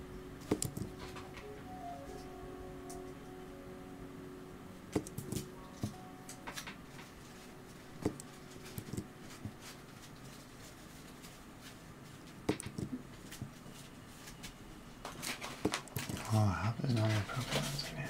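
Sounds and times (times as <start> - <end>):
keyboard taps: 0.5 - 0.9.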